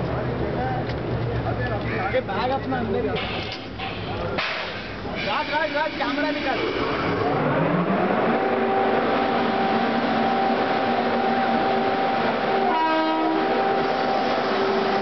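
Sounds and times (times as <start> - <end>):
electric blowers whining: 6.7 - 15.0
train horn blast: 8.3 - 15.0.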